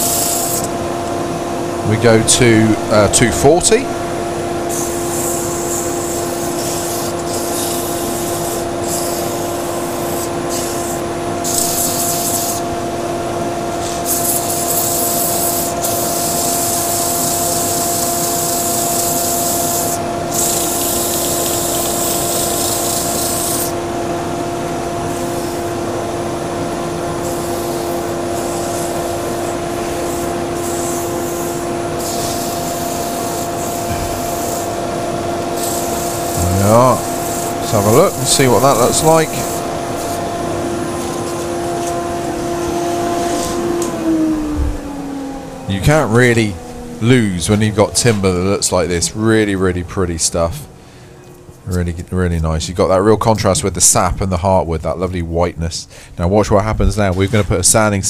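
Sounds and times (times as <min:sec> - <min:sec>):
sandpaper rubbing on spinning wood: 0:00.0 - 0:00.7, 0:04.7 - 0:12.6, 0:13.8 - 0:23.7, 0:29.9 - 0:34.7, 0:35.6 - 0:40.2
lathe machine hum: 0:00.0 - 0:51.6.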